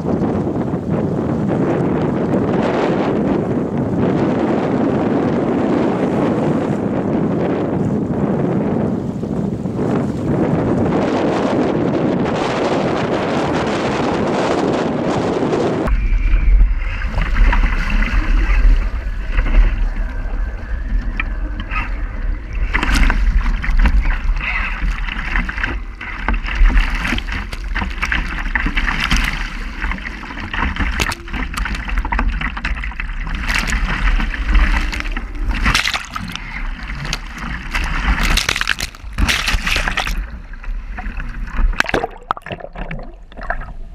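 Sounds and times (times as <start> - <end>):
water rushing past hull: 0.0 - 43.9
wind buffeting microphone: 0.0 - 43.9
sharp splashes: 32.8 - 43.9.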